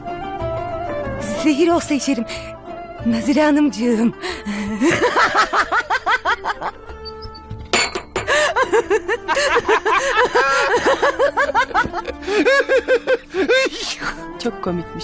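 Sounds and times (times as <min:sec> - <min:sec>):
soft background music: 0:00.0 - 0:15.0
woman laughing hard: 0:04.4 - 0:06.8, 0:08.2 - 0:14.2.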